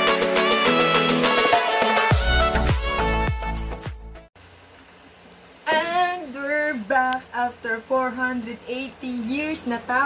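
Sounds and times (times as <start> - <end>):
bright melodic instrumental music: 0.0 - 4.3.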